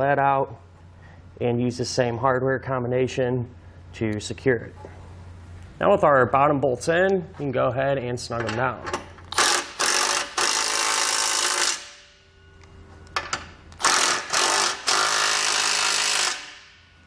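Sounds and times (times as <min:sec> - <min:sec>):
impact wrench hammering bolts: 0:08.4 - 0:12.1, 0:13.2 - 0:16.8.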